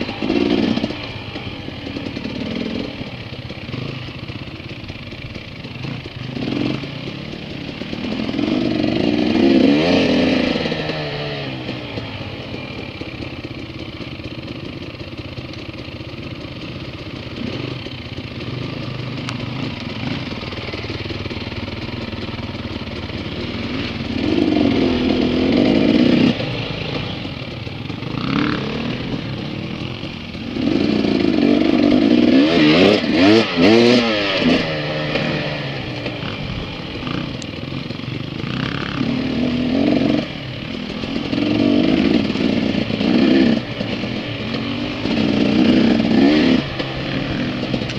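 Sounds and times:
dirt bike engines revving: 0.0 - 47.9.

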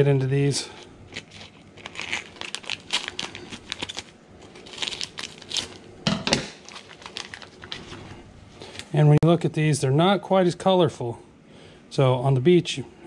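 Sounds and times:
plastic crinkling: 0.6 - 5.9, 6.5 - 9.0.

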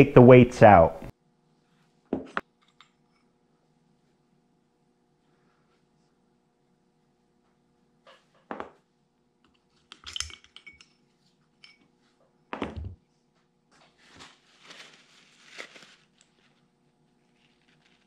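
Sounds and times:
metal parts knocking: 9.9 - 10.9
light metallic clinks: 9.9 - 11.9.

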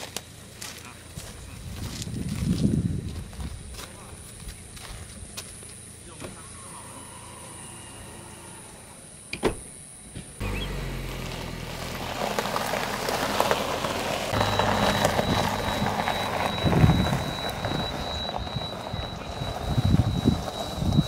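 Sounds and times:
tyres crunching on gravel: 0.0 - 6.6, 10.4 - 21.0
car engine running: 10.4 - 21.0.

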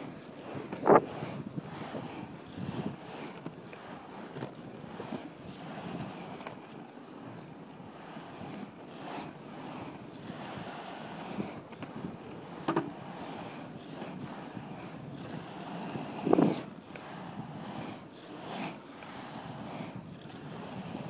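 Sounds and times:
skateboard wheels rolling on concrete: 0.0 - 21.0
wind on microphone: 0.5 - 3.3, 14.0 - 17.9.

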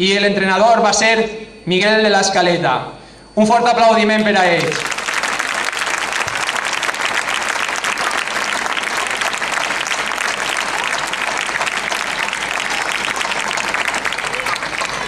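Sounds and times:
crowd applauding: 4.6 - 15.0.

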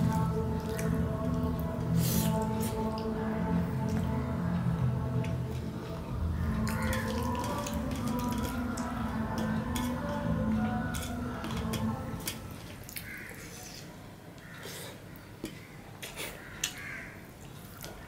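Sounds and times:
chewing and lip-smacking: 0.0 - 3.2, 3.8 - 14.8, 17.4 - 18.0
low steady hum: 0.0 - 14.4.

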